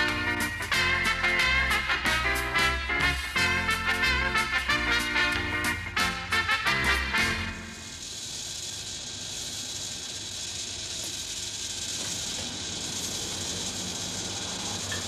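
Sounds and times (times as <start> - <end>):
brass music sting: 0.0 - 7.8
steady hiss: 0.0 - 15.0.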